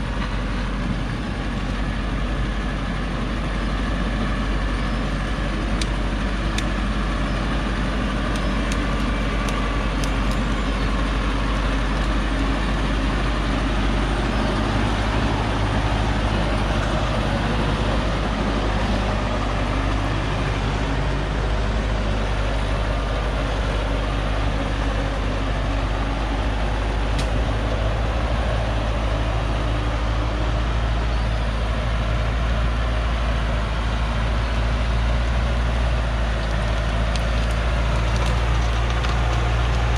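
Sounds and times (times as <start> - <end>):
diesel truck engine rumbling: 0.0 - 39.9.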